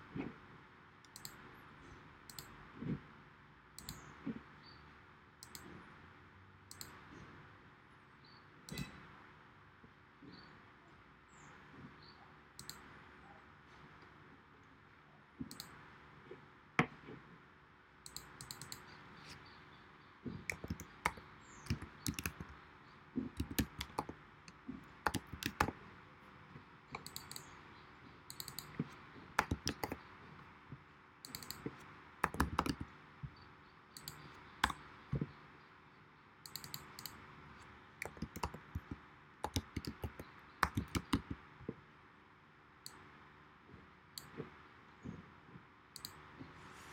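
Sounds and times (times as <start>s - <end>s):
scattered clicks: 1.0s - 1.4s, 2.3s - 2.5s, 3.8s - 4.0s, 5.4s - 5.7s, 6.7s - 7.0s, 12.6s - 12.9s, 15.5s - 15.8s, 18.0s - 19.0s, 20.5s - 22.6s, 23.4s - 25.8s, 26.9s - 27.6s, 28.3s - 30.0s, 31.2s - 32.9s, 33.9s - 34.8s, 36.4s - 41.4s, 46.0s - 46.3s
keyboard typing: 18.1s - 19.4s, 20.4s - 22.6s, 23.2s - 25.8s, 26.9s - 27.5s, 28.3s - 30.1s, 31.2s - 32.9s, 34.0s - 34.8s, 36.5s - 37.2s, 38.0s - 41.4s.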